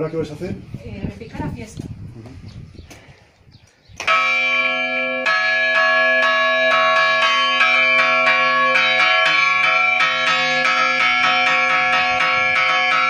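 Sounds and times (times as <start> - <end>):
church bells ringing: 4.1 - 13.0.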